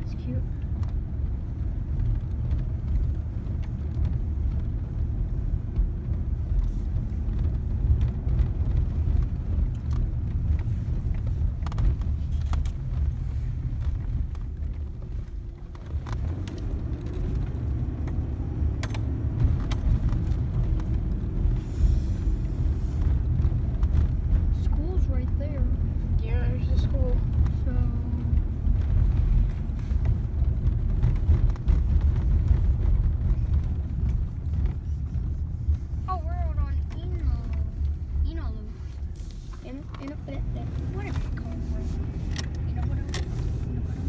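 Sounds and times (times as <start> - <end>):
engine and tyre rumble: 0.0 - 44.0
light clicks and rattles: 38.9 - 43.8.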